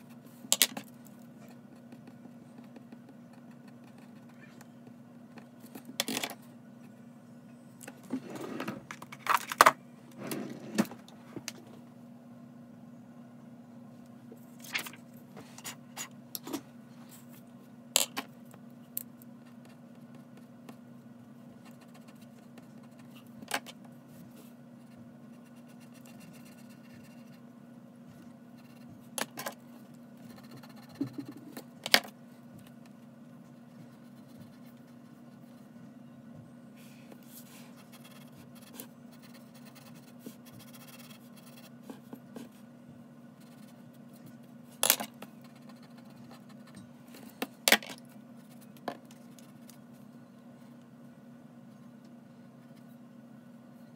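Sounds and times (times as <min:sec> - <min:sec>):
steady low hum: 0:00.0 - 0:53.9
pencil scratching on paper: 0:24.8 - 0:27.4, 0:30.2 - 0:31.5, 0:37.4 - 0:42.5, 0:43.4 - 0:44.0.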